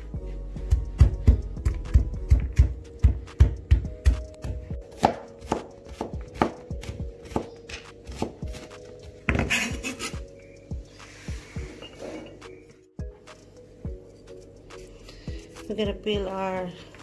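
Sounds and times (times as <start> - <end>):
knife chopping on cutting board: 0.7 - 9.6.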